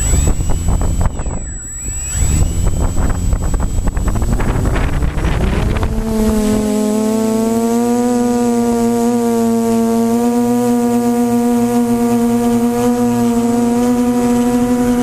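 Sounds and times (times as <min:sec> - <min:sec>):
wind buffeting microphone: 0:00.0 - 0:07.6
quadcopter propellers spinning up: 0:00.0 - 0:15.0.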